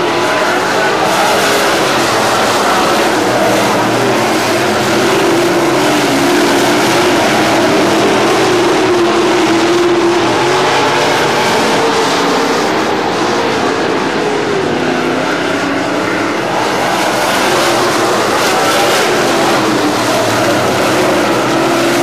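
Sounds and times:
race car engines droning: 0.0 - 22.0.

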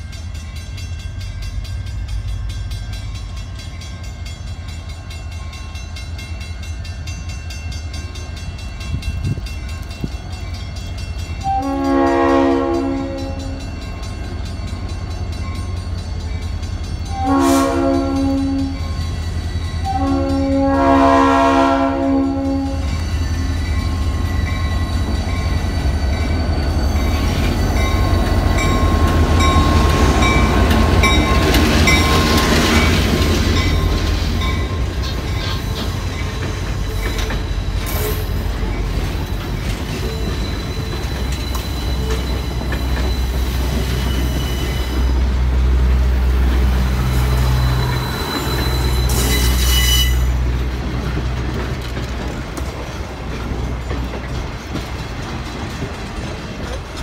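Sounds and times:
crossing bell ringing: 0.0 - 57.0
locomotive engine rumbling: 0.0 - 57.0
train coaches clickety-clack: 0.0 - 57.0
locomotive chime air horn: 11.3 - 13.9, 17.0 - 23.1, 47.4 - 50.4.

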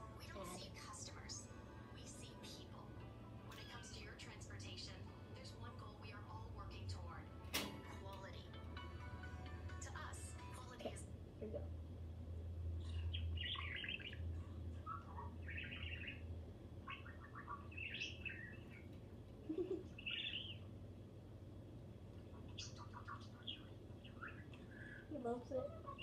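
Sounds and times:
budgerigar chirping: 12.9 - 18.9, 20.0 - 20.7, 22.5 - 25.0.

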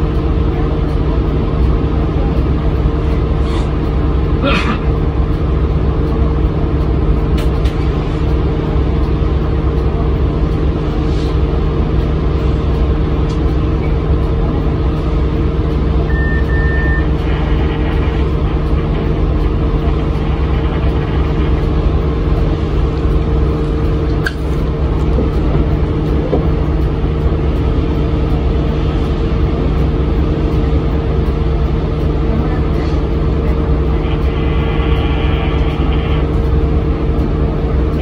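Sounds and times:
road rumble: 0.0 - 16.2, 16.9 - 38.0
bus diesel engine running: 0.0 - 38.0
short high beep: 16.1 - 17.2.

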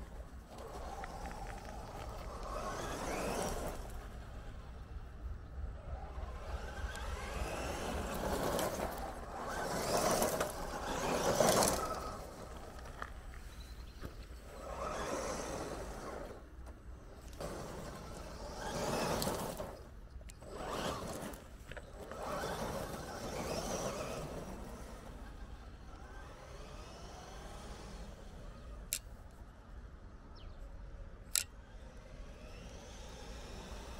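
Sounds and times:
toy truck electric motor: 0.0 - 4.6, 5.8 - 13.2, 14.4 - 29.1, 31.3 - 33.9
tyres crunching on gravel: 0.0 - 4.7, 5.9 - 26.1.

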